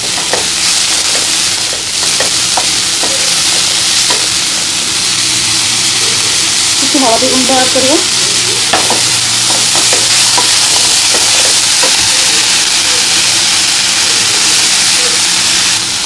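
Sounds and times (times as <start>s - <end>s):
spatula scraping and tapping pan: 0.0s - 4.4s, 8.6s - 12.2s
cabbage sizzling in hot oil: 0.0s - 16.0s.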